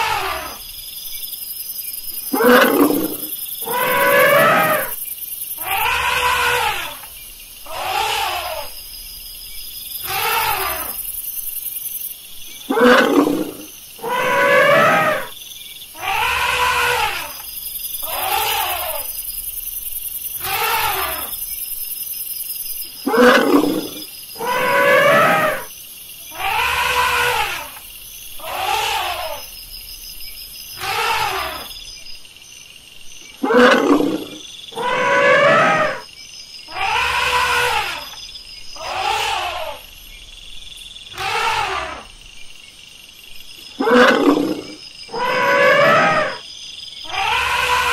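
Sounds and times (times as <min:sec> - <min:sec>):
elephant roaring calls: 0:00.0 - 0:00.6, 0:02.3 - 0:05.0, 0:05.6 - 0:07.1, 0:07.7 - 0:08.7, 0:10.0 - 0:11.0, 0:12.7 - 0:15.3, 0:16.0 - 0:17.4, 0:18.0 - 0:19.1, 0:20.4 - 0:21.3, 0:23.0 - 0:25.7, 0:26.4 - 0:27.8, 0:28.4 - 0:29.5, 0:30.8 - 0:31.7, 0:33.4 - 0:36.0, 0:36.7 - 0:38.2, 0:38.8 - 0:39.8, 0:41.2 - 0:42.1, 0:43.8 - 0:46.4, 0:47.0 - 0:47.9.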